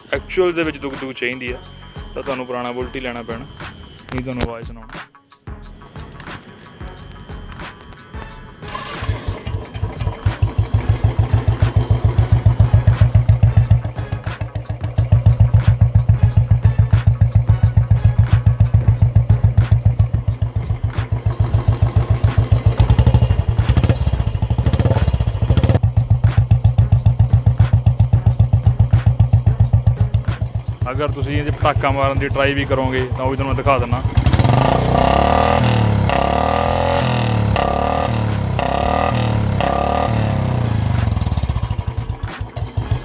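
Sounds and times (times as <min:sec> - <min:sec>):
motorcycle engine thumping at idle: 0:09.0 - 0:43.0.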